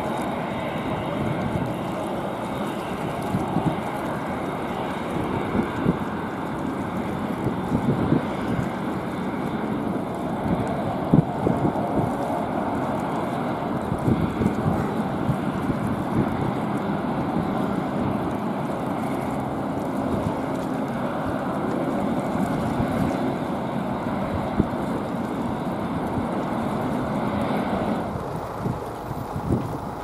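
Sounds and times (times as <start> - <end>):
jet engines roaring: 0.0 - 30.0.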